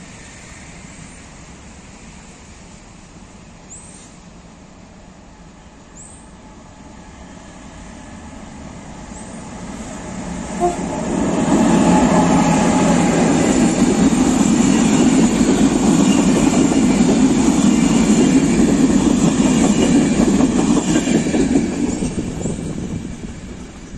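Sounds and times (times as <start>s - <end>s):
train wheels running on rails: 6.4s - 23.9s.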